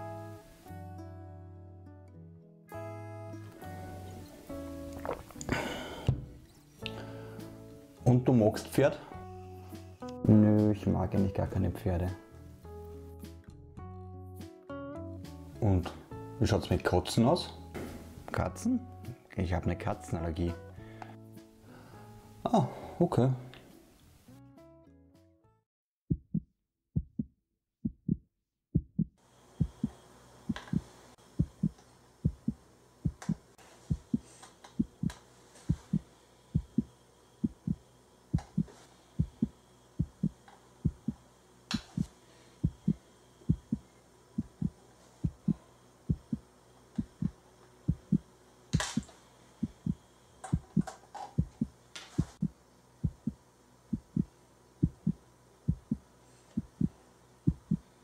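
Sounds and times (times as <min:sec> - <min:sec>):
heartbeat thumps: 0:26.1 - 0:41.2, 0:41.8 - 0:48.3, 0:49.6 - 0:57.9.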